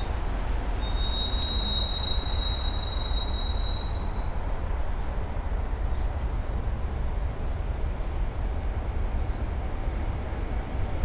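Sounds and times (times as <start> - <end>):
electric locomotive rumbling: 0.0 - 11.0
high wheel squeal: 0.8 - 4.2.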